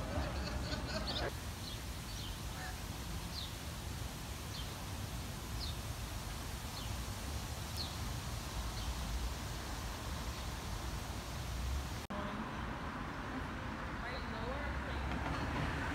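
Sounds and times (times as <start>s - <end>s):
bird chirping: 7.8s - 8.0s.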